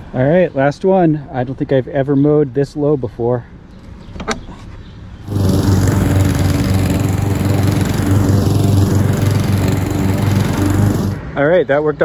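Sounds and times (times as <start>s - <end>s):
lawn mower engine cutting grass: 5.2s - 11.3s.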